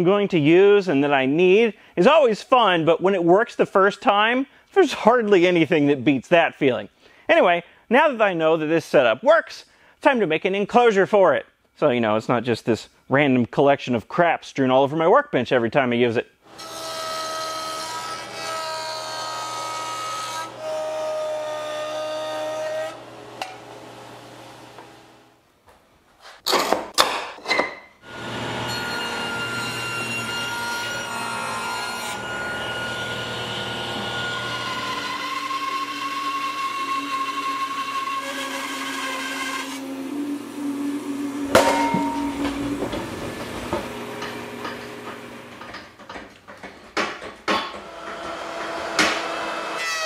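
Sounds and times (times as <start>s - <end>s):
jointer motor whine and cutting: 28.0s - 31.5s, 32.1s - 38.3s, 39.6s - 45.8s
power tool whining: 39.8s - 46.1s
sudden loud knock: 41.5s - 44.0s.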